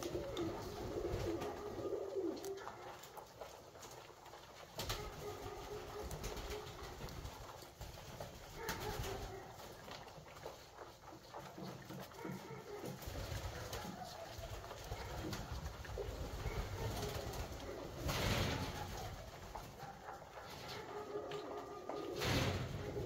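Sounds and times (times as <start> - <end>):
pigeons cooing: 0.0 - 3.3, 4.2 - 23.0.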